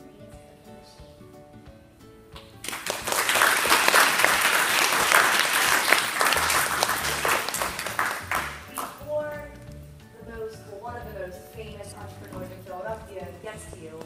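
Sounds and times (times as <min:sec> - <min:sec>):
soft music with held notes: 0:00.0 - 0:14.0
audience applause: 0:02.6 - 0:08.9.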